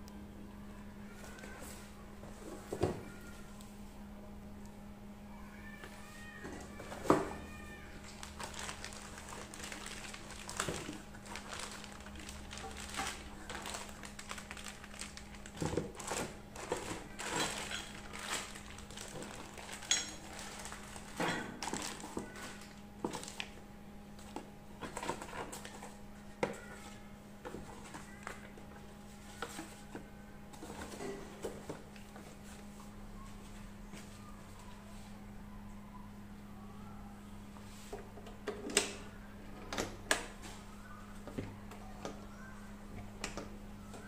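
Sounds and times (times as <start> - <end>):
plastic bags crinkling: 7.9 - 23.6.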